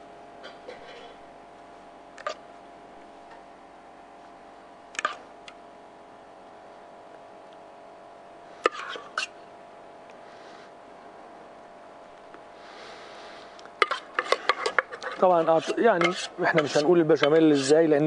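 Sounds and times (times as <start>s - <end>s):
faint hum: 0.0s - 18.0s
metal ladle clinking on pans: 13.8s - 17.7s.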